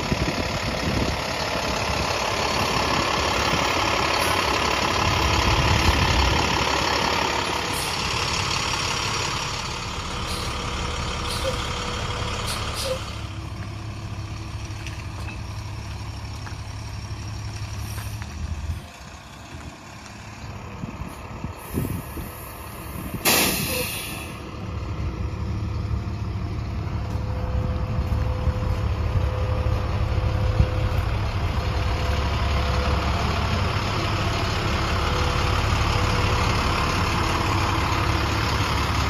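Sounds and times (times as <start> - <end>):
bus engine running: 0.0 - 39.0
air brakes releasing air: 7.7 - 8.1, 10.2 - 10.6, 11.2 - 11.7, 12.4 - 13.2, 17.8 - 18.2, 21.6 - 24.5.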